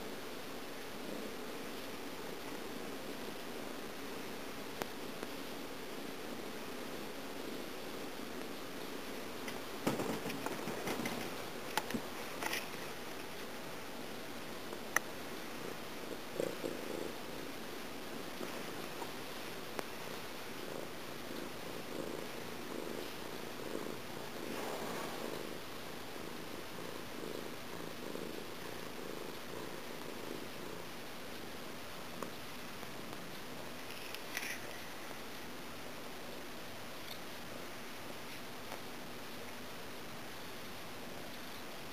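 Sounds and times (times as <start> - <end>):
cat purring: 0.0 - 41.9
steady low hiss: 0.0 - 41.9
soft rustling: 8.3 - 35.5.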